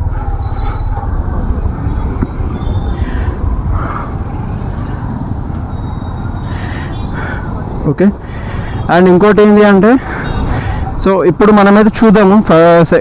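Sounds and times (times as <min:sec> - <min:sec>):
wind noise: 0:00.0 - 0:08.9
motorcycle engine rumble: 0:00.0 - 0:09.0.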